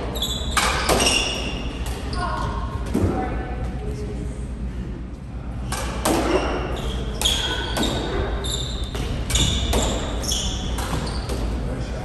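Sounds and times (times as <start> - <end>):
squash ball hits: 0.6 - 2.1, 5.7 - 6.6, 7.2 - 11.4.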